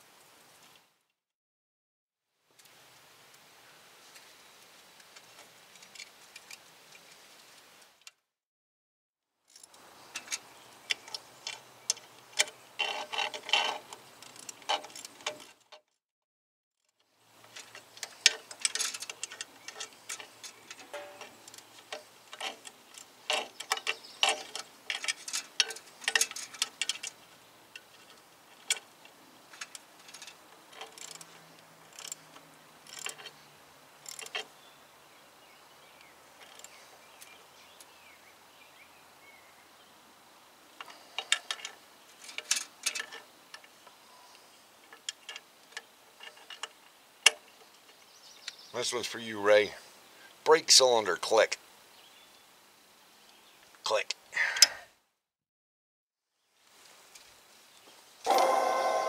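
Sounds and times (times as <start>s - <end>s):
metallic clicks of hand tools: 29.5s - 33.3s, 34.0s - 34.5s.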